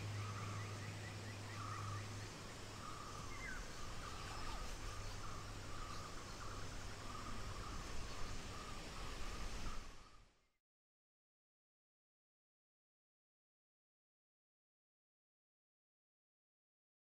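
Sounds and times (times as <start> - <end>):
insect trilling: 0.0 - 10.2.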